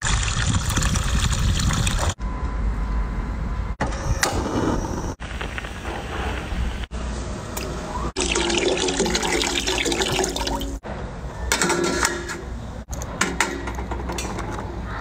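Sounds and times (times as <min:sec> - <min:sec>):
tap water running and splashing: 0:08.2 - 0:10.8.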